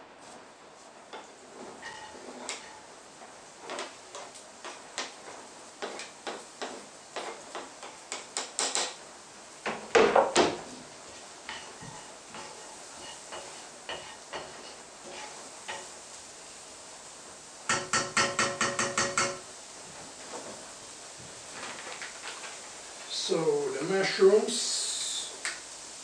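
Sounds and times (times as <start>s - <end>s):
faint sizzle from pan: 0.0s - 26.0s
cutting board knocking on pan: 17.7s - 19.4s.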